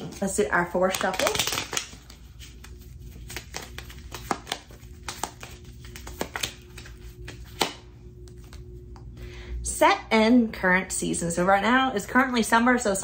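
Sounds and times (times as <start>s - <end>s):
cards being shuffled: 0.0s - 8.7s.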